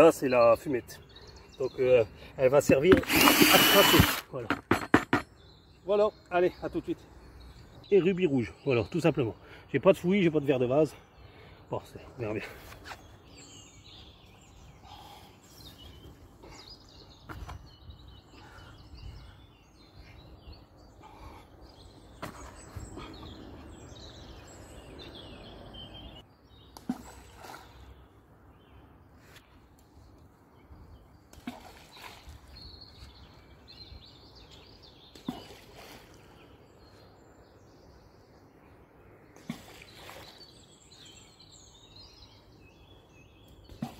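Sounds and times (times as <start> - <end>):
birds chirping: 0.0 - 43.9.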